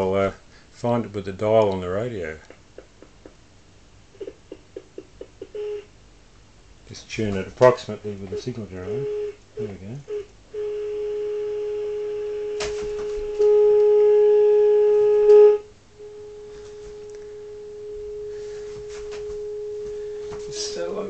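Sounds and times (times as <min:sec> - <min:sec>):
steady single-pitch tone: 0:08.0 - 0:20.9.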